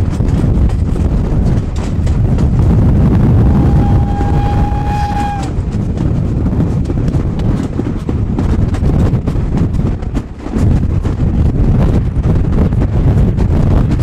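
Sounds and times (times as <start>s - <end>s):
heavy low rumble: 0.0s - 14.0s
wind on microphone: 0.0s - 14.0s
steam locomotive whistle: 3.4s - 5.6s.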